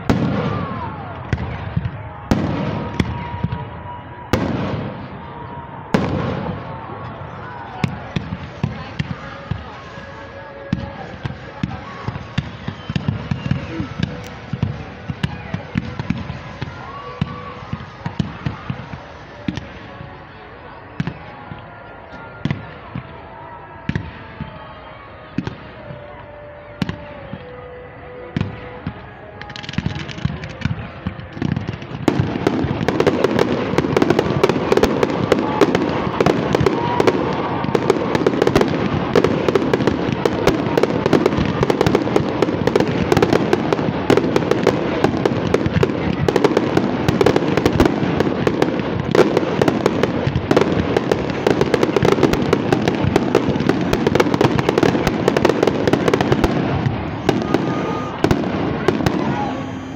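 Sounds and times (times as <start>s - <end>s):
fireworks bursting: 0.0s - 24.6s, 25.3s - 59.9s.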